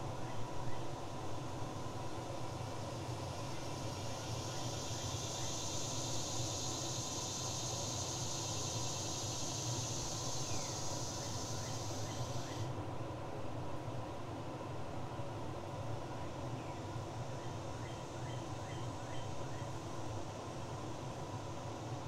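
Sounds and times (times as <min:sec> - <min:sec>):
high insect buzz: 0:04.0 - 0:12.7.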